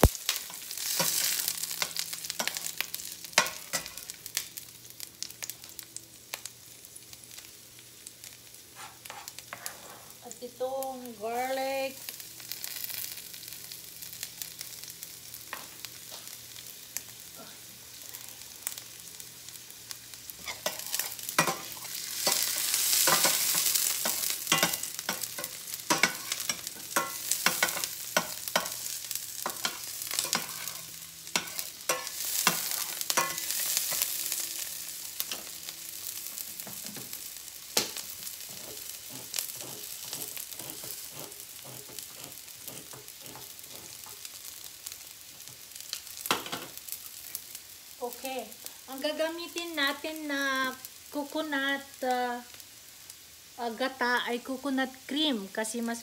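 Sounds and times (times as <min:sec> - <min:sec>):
onion sizzling in hot oil: 0:00.0 - 0:56.0
metal utensils scraping a pan: 0:08.8 - 0:10.2, 0:20.4 - 0:28.8, 0:29.4 - 0:34.1, 0:37.8 - 0:44.3.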